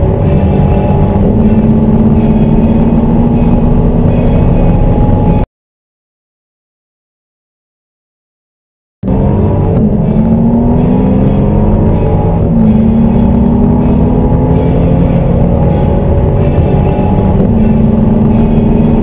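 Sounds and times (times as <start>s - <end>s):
car engine at full throttle: 0.0s - 5.4s, 9.0s - 19.0s
gear changes: 0.0s - 5.4s, 9.0s - 19.0s.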